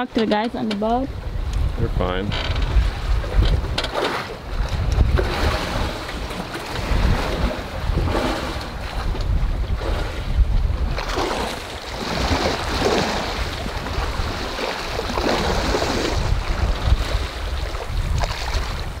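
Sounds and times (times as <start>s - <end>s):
low wind rumble: 0.0s - 19.0s
waves sloshing and splashing: 0.0s - 19.0s.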